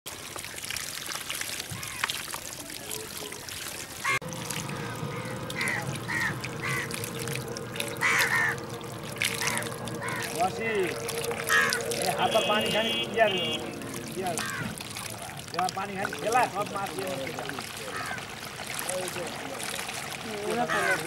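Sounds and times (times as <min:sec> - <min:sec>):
water pouring: 0:00.1 - 0:21.0
short pitched calls: 0:05.1 - 0:14.8.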